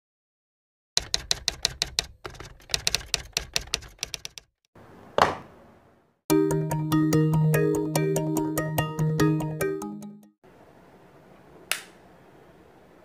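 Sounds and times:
typewriter keystrokes clacking: 1.0 - 4.5
music: 6.3 - 10.4.

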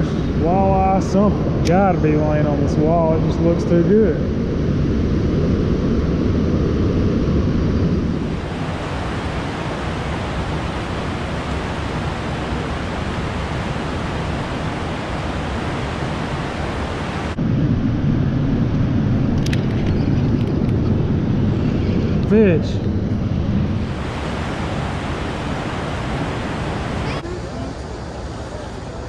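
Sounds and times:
water roaring from spillway: 0.0 - 4.4, 8.2 - 17.4, 23.6 - 29.0.

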